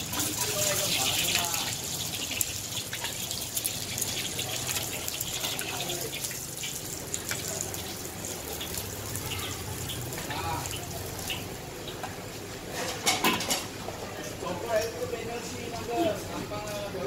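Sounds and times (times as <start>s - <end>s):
egg sizzling in hot oil: 0.0s - 12.5s.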